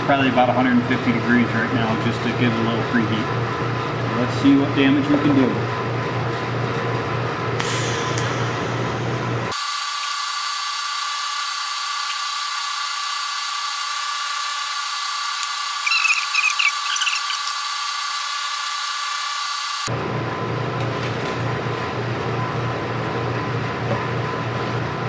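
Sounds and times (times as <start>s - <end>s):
welding arc hiss: 9.5s - 19.9s
short chirps: 15.8s - 17.6s.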